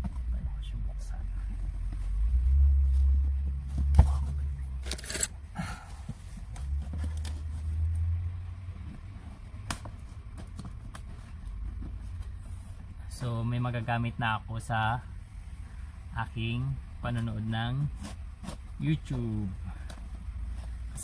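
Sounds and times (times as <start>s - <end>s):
scraping and rustling: 17.8s - 19.2s.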